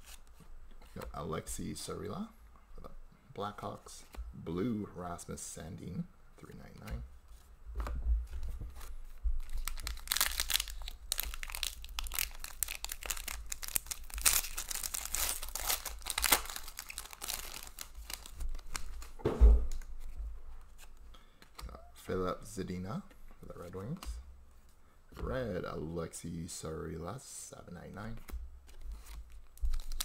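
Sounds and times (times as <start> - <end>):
cards being handled: 6.7 - 21.6, 28.2 - 30.0
foil wrapper tearing and crinkling: 9.5 - 19.1, 29.6 - 30.0
soft thump: 19.2 - 19.7.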